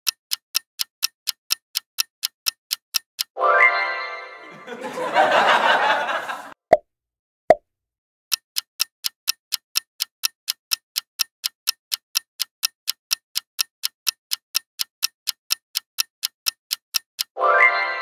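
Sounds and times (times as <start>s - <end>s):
clock ticking: 0.0s - 3.4s, 8.3s - 18.0s.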